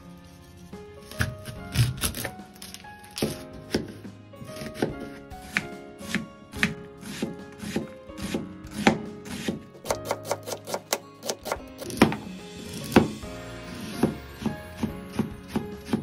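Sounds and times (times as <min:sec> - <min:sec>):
background music: 0:00.0 - 0:16.0
knife chopping onion on board: 0:01.1 - 0:13.2.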